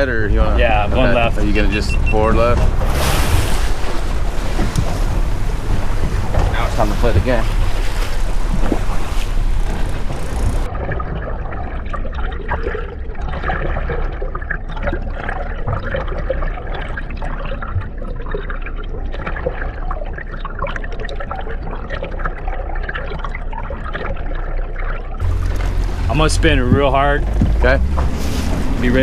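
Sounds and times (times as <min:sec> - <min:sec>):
low rumble: 0:00.0 - 0:13.2, 0:25.2 - 0:29.0
muffled water splashing: 0:00.0 - 0:29.0
small crackles: 0:03.6 - 0:10.7.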